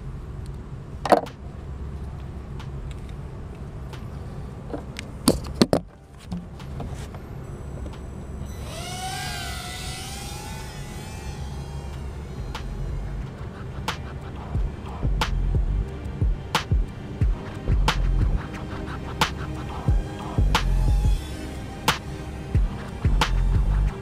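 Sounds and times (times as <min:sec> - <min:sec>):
low rumble: 0:06.5 - 0:24.0
quadcopter motors whining: 0:07.4 - 0:24.0.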